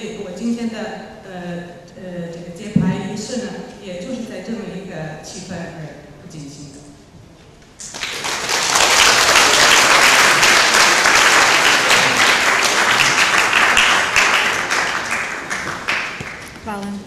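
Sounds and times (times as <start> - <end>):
audience applauding: 7.8 - 16.6.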